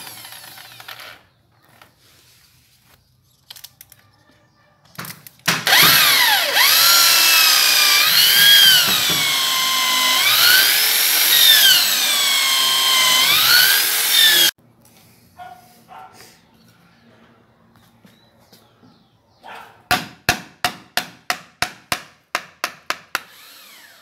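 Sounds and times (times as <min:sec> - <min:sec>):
electric drill boring into wood: 0:00.0 - 0:01.2, 0:05.6 - 0:14.6, 0:23.1 - 0:24.0.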